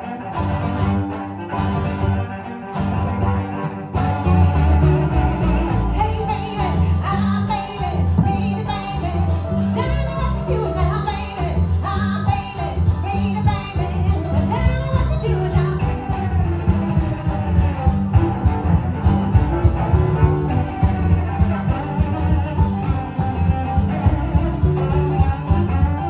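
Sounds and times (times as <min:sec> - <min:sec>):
string band playing: 0:00.0 - 0:26.0
upright bass line: 0:00.0 - 0:26.0
woman singing: 0:05.7 - 0:17.1.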